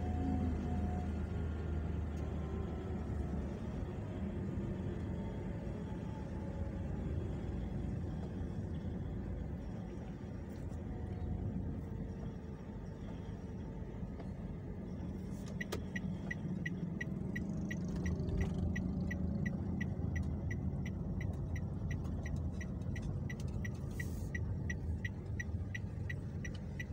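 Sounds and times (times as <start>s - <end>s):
car road and engine rumble: 0.0s - 26.9s
turn signal ticking: 7.2s - 26.9s.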